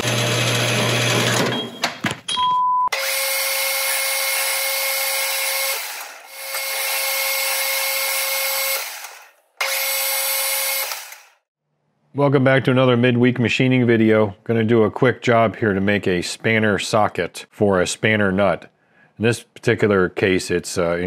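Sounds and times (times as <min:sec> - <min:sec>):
metal lathe whining: 0:00.0 - 0:01.5, 0:03.0 - 0:11.3.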